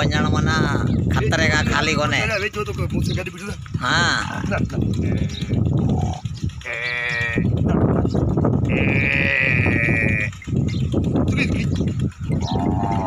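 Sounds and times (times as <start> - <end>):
cattle calling: 3.9 - 7.7, 8.6 - 10.5, 12.3 - 13.0.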